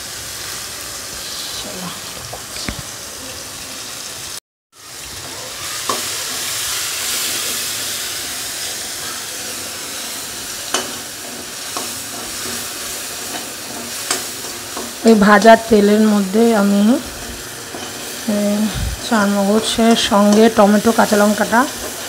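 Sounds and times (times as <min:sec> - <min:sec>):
paste sizzling in hot oil: 0:00.0 - 0:22.0
spatula scraping pan: 0:17.0 - 0:22.0.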